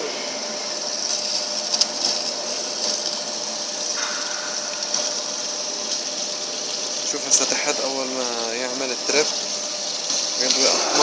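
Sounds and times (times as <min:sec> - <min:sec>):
band saw humming and hissing: 0:00.0 - 0:11.0.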